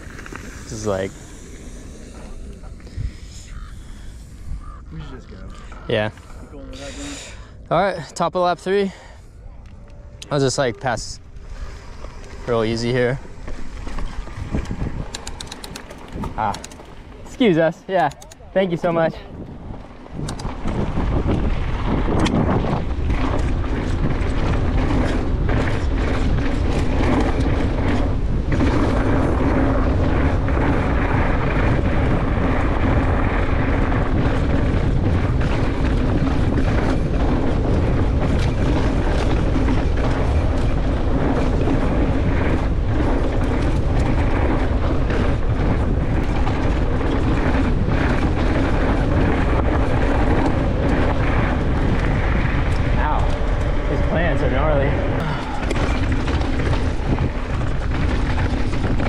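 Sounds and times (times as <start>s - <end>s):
bike clicks and rattles: 0.0s - 4.8s, 5.5s - 59.0s
steady low hum: 0.0s - 59.0s
wind rush on microphone: 0.0s - 59.0s
tyres rumbling on dirt: 10.3s - 59.0s.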